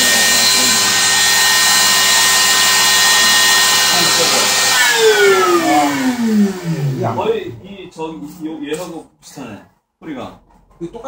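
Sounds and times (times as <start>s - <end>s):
router whining and spinning down: 0.0s - 7.5s.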